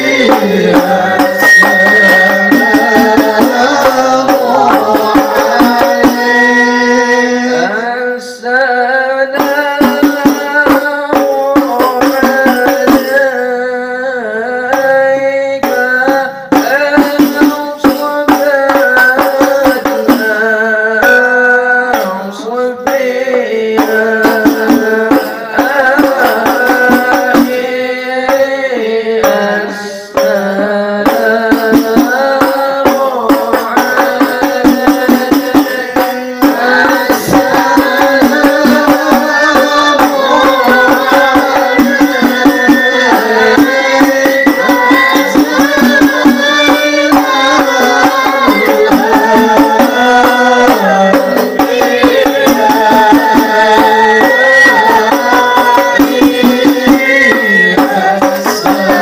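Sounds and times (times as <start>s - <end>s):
hand-struck frame drum: 0.0s - 6.7s, 9.4s - 13.3s, 22.8s - 28.5s, 31.0s - 59.0s
voices singing devotional verses: 0.0s - 59.0s.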